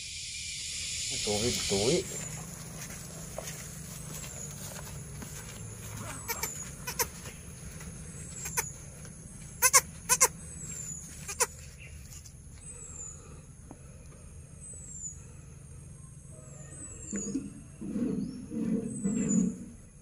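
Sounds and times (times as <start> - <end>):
kid goat bleating: 6.0 - 7.2, 8.4 - 8.8, 9.6 - 10.4, 11.2 - 11.6.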